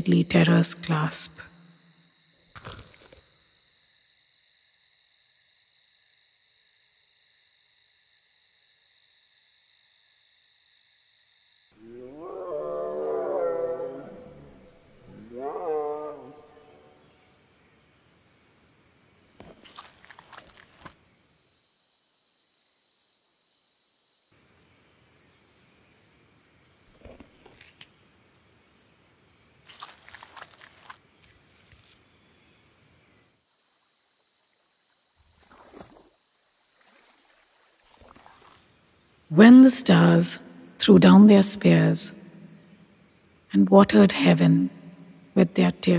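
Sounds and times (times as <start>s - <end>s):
crunching and tearing of carcass: 29.7s - 31.0s.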